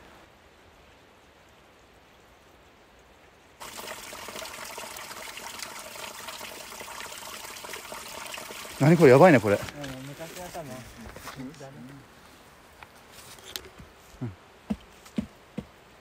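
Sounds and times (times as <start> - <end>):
faint outdoor background: 0.0 - 16.0
stream water rushing: 3.6 - 13.1.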